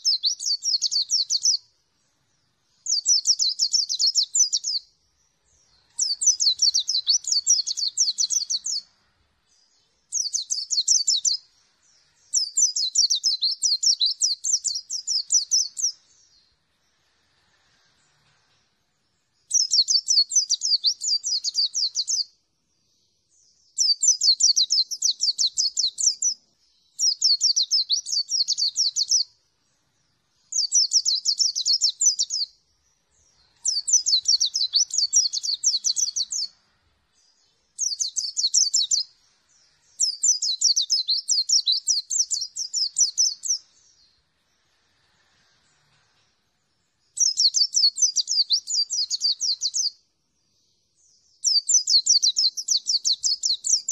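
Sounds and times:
bird trilling song: 0:00.0 - 0:17.0, 0:17.8 - 0:53.9.

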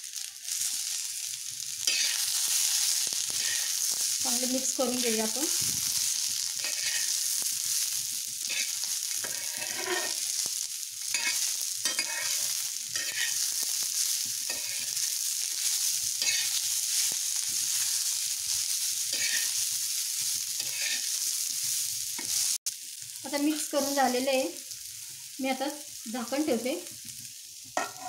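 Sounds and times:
corn sizzling in oil: 0:00.0 - 0:28.0
spatula scraping griddle: 0:01.8 - 0:04.0, 0:06.6 - 0:07.2, 0:08.5 - 0:10.4, 0:11.1 - 0:13.6, 0:14.4 - 0:19.6, 0:20.6 - 0:21.2.

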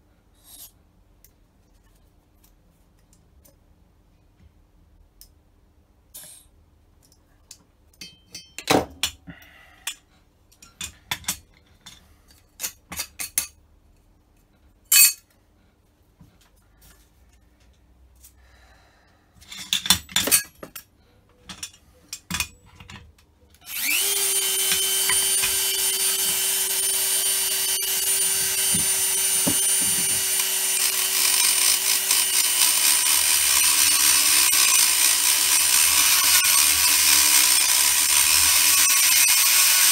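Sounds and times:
rotary tool grinding metal: 0:23.6 - 0:39.9.

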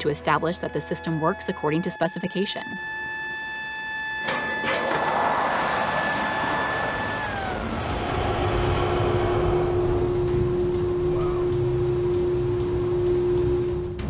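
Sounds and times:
high whine: 0:01.6 - 0:14.0
sudden rush of noise: 0:04.6 - 0:12.6
low rumble: 0:05.4 - 0:14.0.

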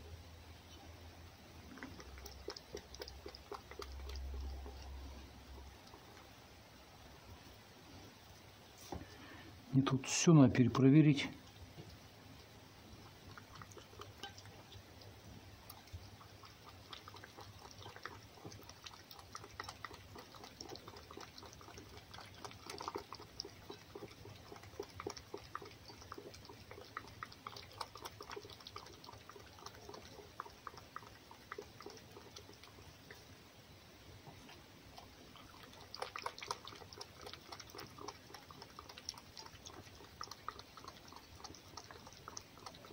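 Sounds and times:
fox lapping from a bowl: 0:01.4 - 0:42.9.

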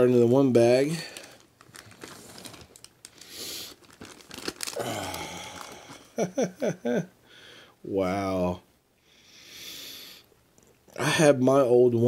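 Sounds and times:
plastic bag crinkling: 0:00.6 - 0:06.3.

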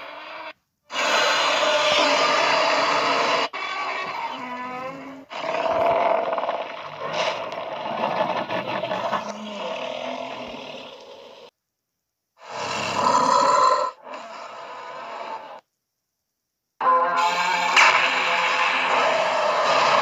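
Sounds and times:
monster roaring: 0:00.9 - 0:04.4, 0:05.3 - 0:11.4, 0:12.4 - 0:15.6, 0:16.8 - 0:20.0
wavering monster growl: 0:00.9 - 0:11.5, 0:16.8 - 0:20.0.

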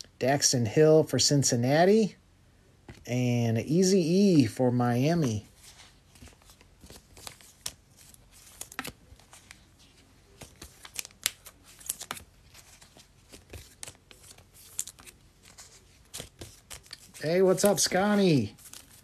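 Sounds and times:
foil wrappers crinkling: 0:06.2 - 0:19.0
trading cards clicking: 0:13.3 - 0:18.8.

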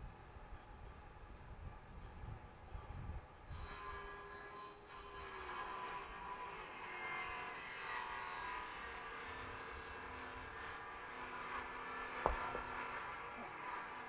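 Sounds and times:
log knocking on chopping block: 0:12.2 - 0:12.8.

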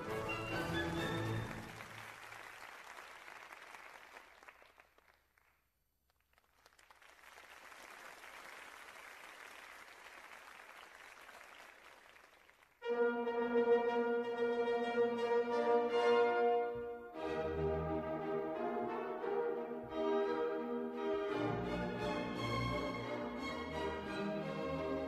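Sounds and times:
orchestral music: 0:00.0 - 0:02.0, 0:12.8 - 0:25.0
audience applauding: 0:00.0 - 0:12.8.

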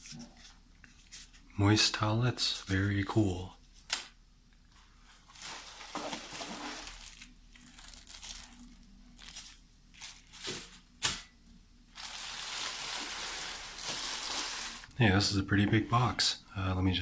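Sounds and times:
plastic bag crinkling: 0:05.2 - 0:10.8, 0:11.9 - 0:15.0.

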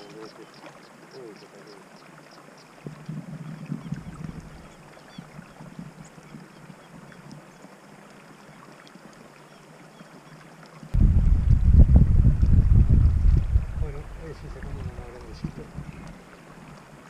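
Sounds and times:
wind buffeting microphone: 0:02.8 - 0:06.4, 0:10.9 - 0:16.3
faint ticks: 0:15.1 - 0:17.0.

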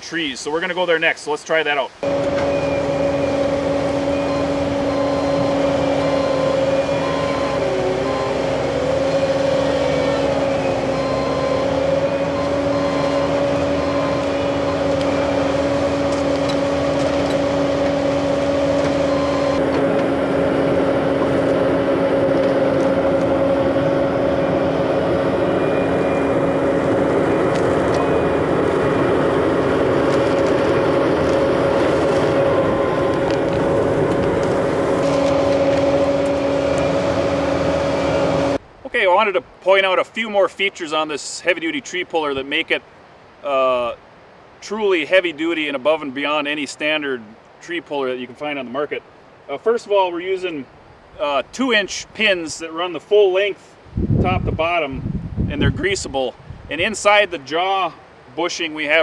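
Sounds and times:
constant whine: 0:01.9 - 0:40.8
diesel engine running under load: 0:02.0 - 0:38.6.

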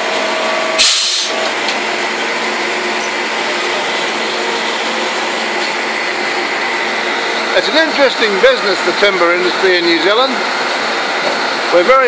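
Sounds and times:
sawmill machinery drone: 0:00.0 - 0:12.0
loud rushing hiss: 0:00.8 - 0:01.4.

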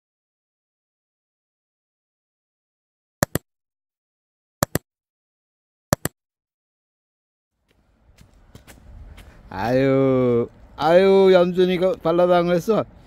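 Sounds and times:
mouse double clicks: 0:03.2 - 0:03.4, 0:04.6 - 0:04.8, 0:05.9 - 0:06.1
faint outdoor background noise: 0:07.6 - 0:13.0.

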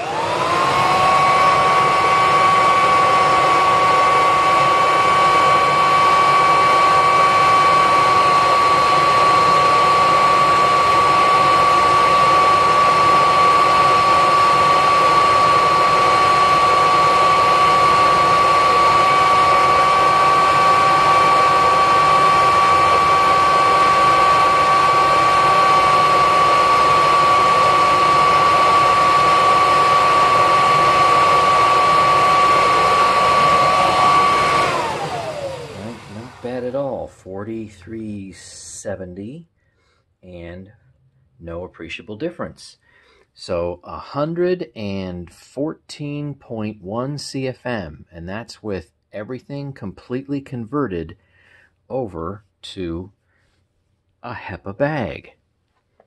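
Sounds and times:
vacuum cleaner motor whining: 0:00.0 - 0:37.1.

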